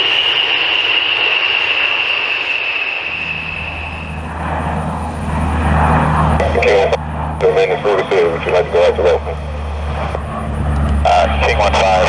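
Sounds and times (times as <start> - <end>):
jet engines whining overhead: 0.0 - 12.0
turboprop drone: 0.0 - 12.0.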